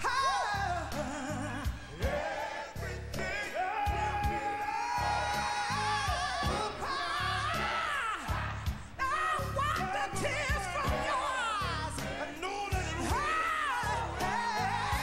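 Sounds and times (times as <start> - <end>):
backing singers: 0.0 - 15.0
band with steady drum beat: 0.0 - 15.0
woman singing gospel lead: 3.3 - 15.0.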